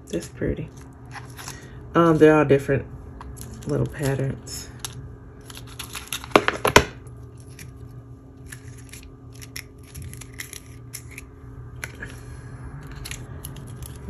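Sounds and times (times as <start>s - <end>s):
foil packaging crackling: 3.2s - 11.2s.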